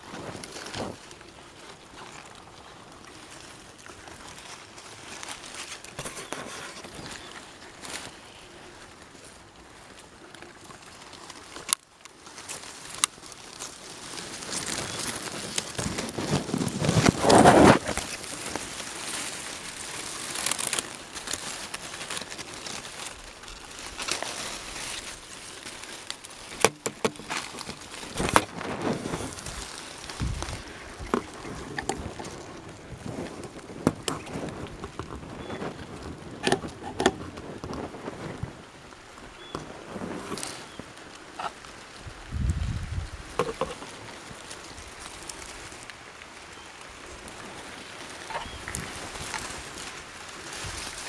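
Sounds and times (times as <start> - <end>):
fabric rustling against microphone: 0.0 - 51.0.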